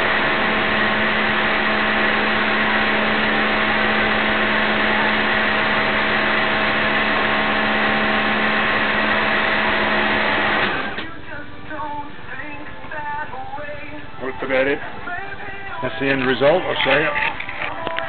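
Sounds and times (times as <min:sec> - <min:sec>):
pressure washer running: 0:00.0 - 0:11.2.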